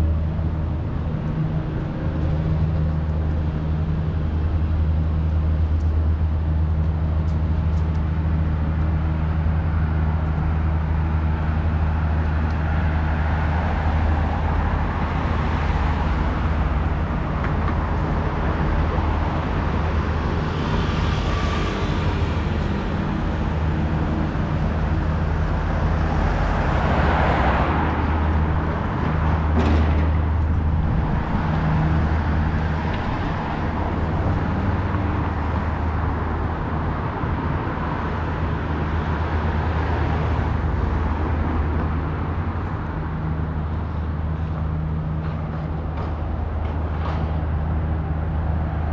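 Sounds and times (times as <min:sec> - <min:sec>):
low engine hum: 0:00.0 - 0:48.9
vehicles passing: 0:00.0 - 0:48.9.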